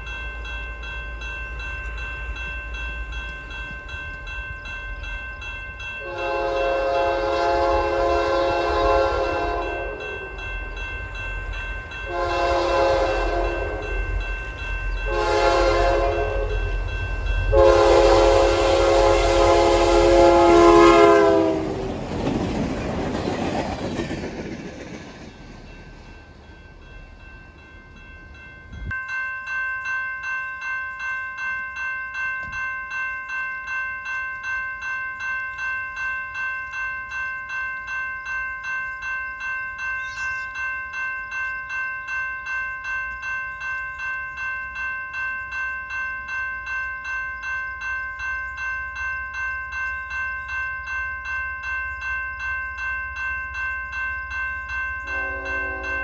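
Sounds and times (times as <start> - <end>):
train rumble: 0.0 - 29.0
crossing bell ringing: 0.0 - 56.0
locomotive air horn blasts: 6.0 - 10.2, 12.1 - 13.9, 15.1 - 16.6, 17.5 - 21.8, 55.1 - 56.0.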